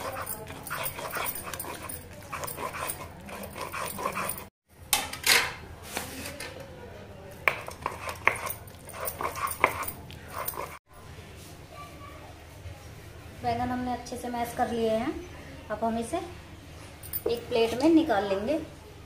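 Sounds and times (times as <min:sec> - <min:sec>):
stone scraping: 0:00.0 - 0:04.5, 0:07.5 - 0:10.8.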